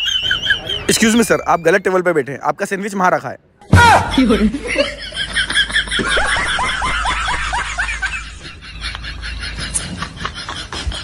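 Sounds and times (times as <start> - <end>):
person laughing: 3.9 - 11.0.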